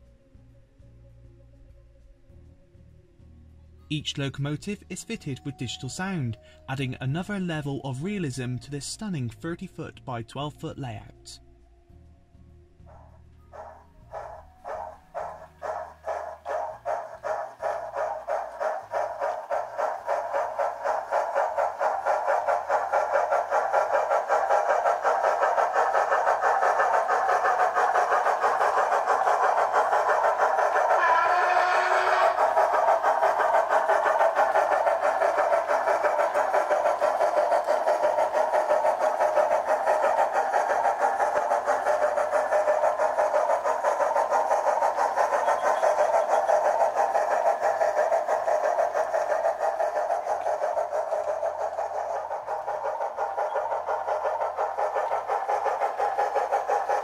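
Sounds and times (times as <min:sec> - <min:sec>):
model steam locomotive chuffing: 0:03.9 - 0:11.4, 0:12.8 - 0:57.0.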